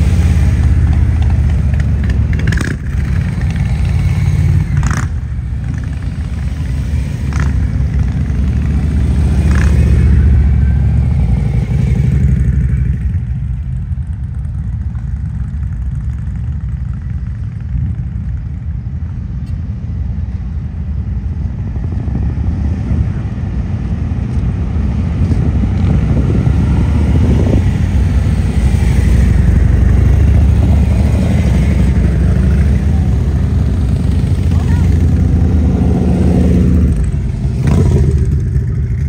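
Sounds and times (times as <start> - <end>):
motorcycle engines rumbling: 0.0 - 39.0.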